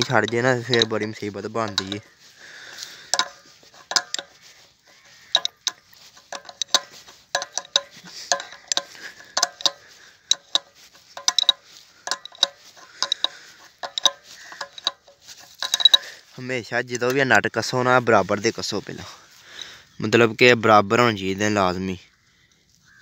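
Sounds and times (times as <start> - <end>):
spanner clinking on metal bolts: 0.0 - 16.4.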